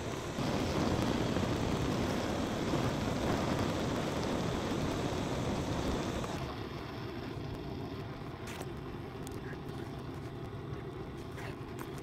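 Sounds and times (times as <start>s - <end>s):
blowtorch flame hissing: 0.0s - 7.4s.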